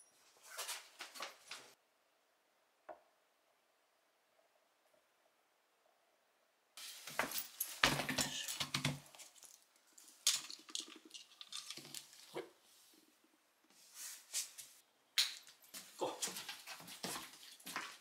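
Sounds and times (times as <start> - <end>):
metal clasps clicking and jangling: 6.9 - 8.6, 9.2 - 12.3.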